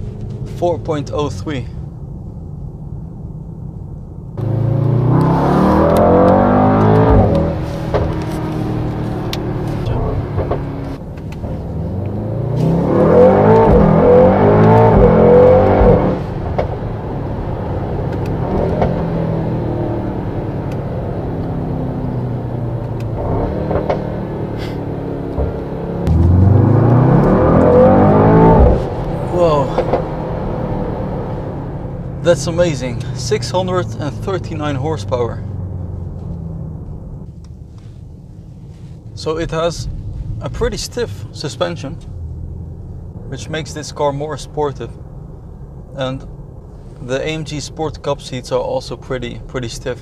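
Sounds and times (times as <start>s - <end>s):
car engine accelerating hard: 4.4s - 38.0s.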